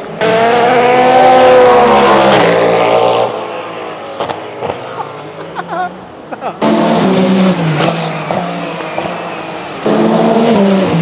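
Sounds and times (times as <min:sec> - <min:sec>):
race car passing at speed: 0:00.0 - 0:05.6, 0:06.6 - 0:11.0.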